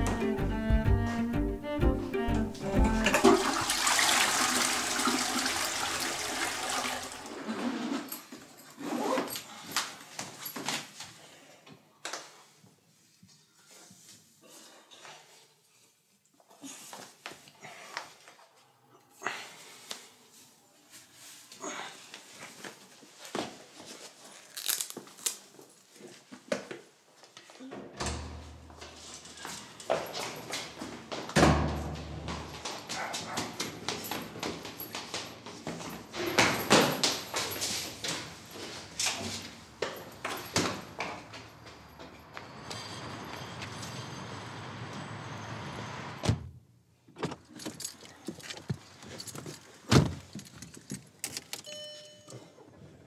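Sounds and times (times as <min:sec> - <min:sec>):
toilet flushing: 0:03.0 - 0:07.6
clothing and shoes rustling: 0:07.2 - 0:11.5, 0:19.6 - 0:27.7, 0:28.6 - 0:42.7, 0:47.2 - 0:52.2
small knocks and scuffs: 0:28.7 - 0:42.4, 0:47.2 - 0:51.2.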